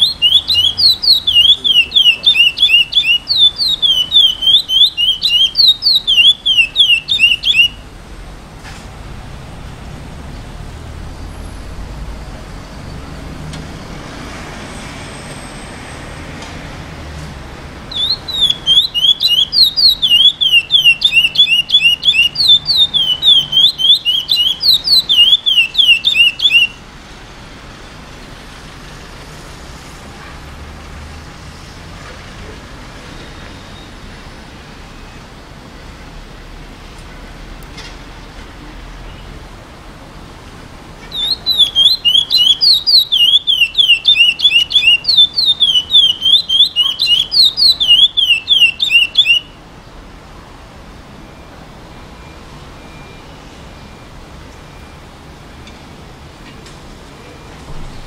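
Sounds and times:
finch singing whistled notes: 0:00.0 - 0:07.9, 0:17.9 - 0:26.8, 0:41.0 - 0:49.6.

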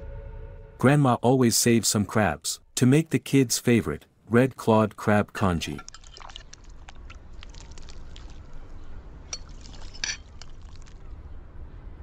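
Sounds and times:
low hum: 0:00.0 - 0:01.1
congee bubbling in a pot: 0:05.8 - 0:11.1.

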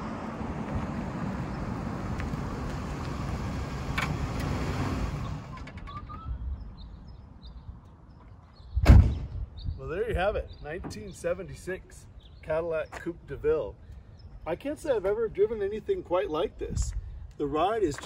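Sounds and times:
car engine and tyre noise: 0:00.0 - 0:08.7.

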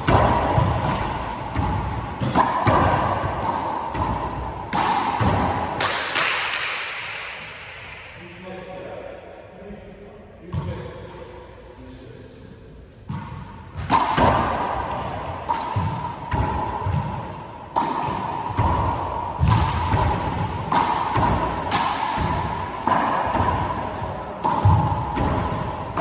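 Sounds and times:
hand slapping ball: 0:00.0 - 0:07.4, 0:17.7 - 0:26.0.

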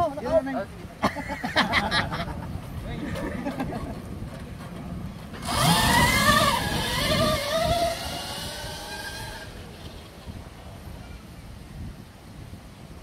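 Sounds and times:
electric dirt bike whine: 0:05.3 - 0:10.4.

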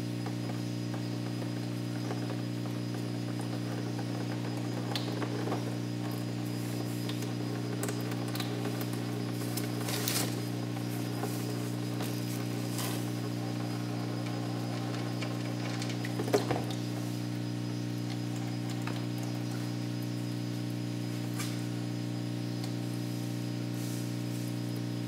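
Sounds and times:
low electrical hum: 0:00.0 - 0:25.0.

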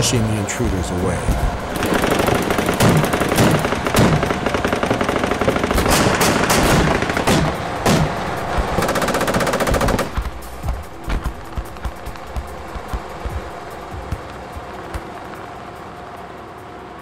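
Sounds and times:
automatic machine-gun fire: 0:01.7 - 0:08.1, 0:08.8 - 0:10.2.

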